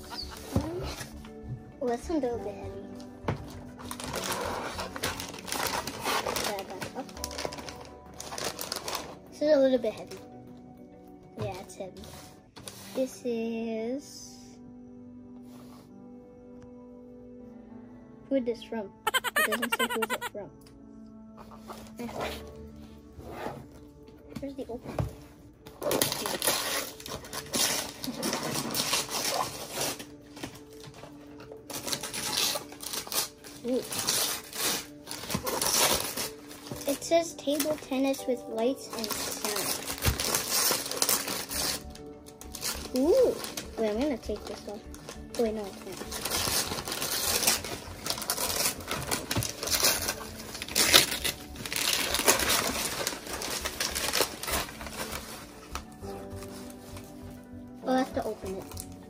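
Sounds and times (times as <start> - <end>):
wrapping paper crinkling and tearing: 2.9 - 10.4, 19.1 - 20.3, 25.8 - 38.2, 38.8 - 59.0.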